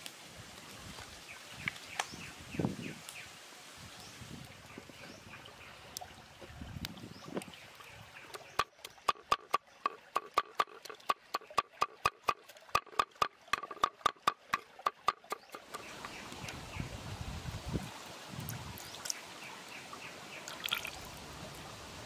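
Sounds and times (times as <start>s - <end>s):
cleaver chopping on wooden block: 8.4s - 15.9s.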